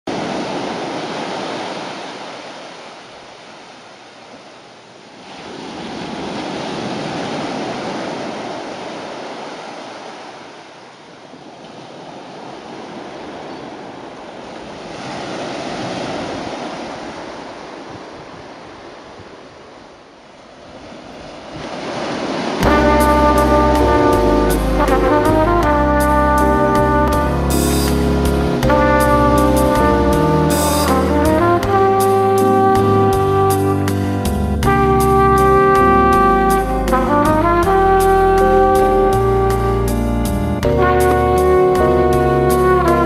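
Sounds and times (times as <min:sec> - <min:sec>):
small waves breaking on beach: 0:00.1 - 0:22.7.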